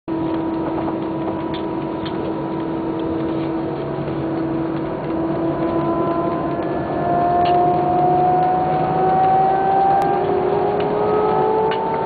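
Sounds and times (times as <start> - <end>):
jet engines humming: 0.1 - 12.0.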